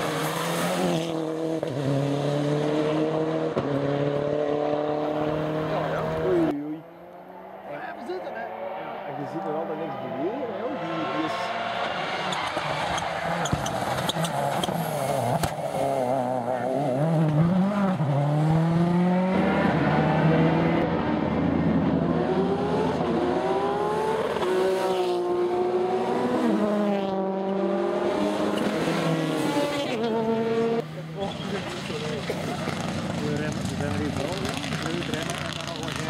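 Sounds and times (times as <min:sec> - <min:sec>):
rally car engine accelerating: 0:00.0 - 0:07.6, 0:08.4 - 0:36.0.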